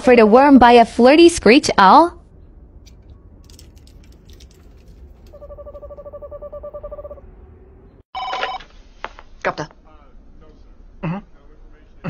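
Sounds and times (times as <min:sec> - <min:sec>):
brief loud tone: 0:05.3 - 0:07.2.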